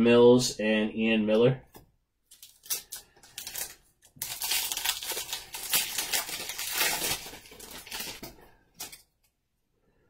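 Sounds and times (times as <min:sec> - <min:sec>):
card pack wrapper tearing: 0:02.3 - 0:09.0
wrapper crinkling: 0:02.3 - 0:09.1.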